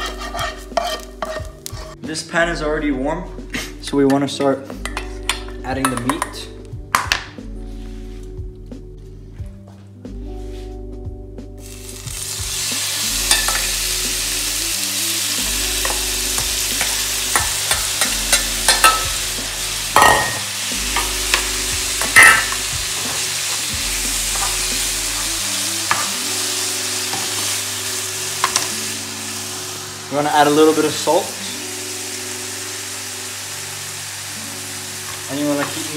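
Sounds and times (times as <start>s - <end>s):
spatula scraping and tapping pan: 0.0s - 2.0s
meat sizzling in oil: 11.6s - 35.9s.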